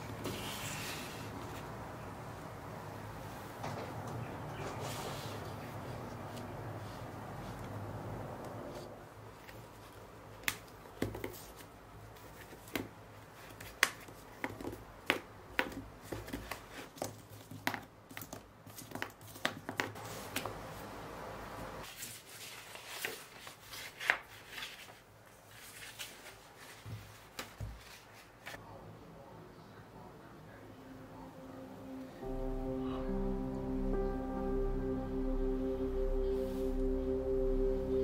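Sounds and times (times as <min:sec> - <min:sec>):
paper rustling: 0:00.0 - 0:01.8, 0:21.8 - 0:28.6
taps and knocks on a book: 0:10.4 - 0:11.4, 0:13.6 - 0:20.0.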